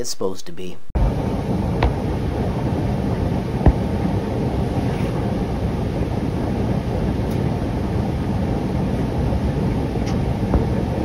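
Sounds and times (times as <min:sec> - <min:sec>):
printer low rumbling: 0:01.0 - 0:11.0.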